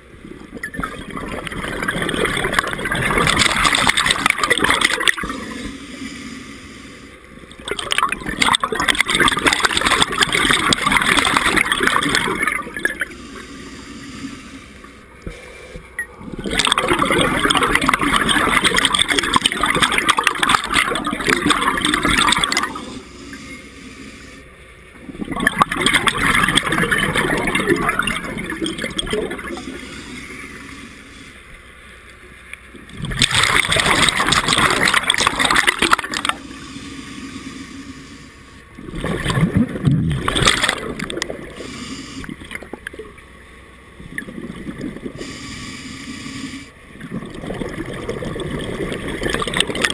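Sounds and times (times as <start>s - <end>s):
underwater breath bubbles gurgling: 0.0s - 31.6s, 32.8s - 43.2s, 44.0s - 49.9s.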